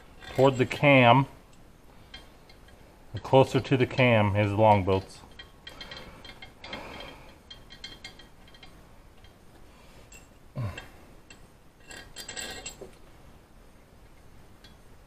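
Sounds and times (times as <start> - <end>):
metal bolts clinking: 0.0 - 1.2, 2.1 - 9.4, 11.3 - 13.0.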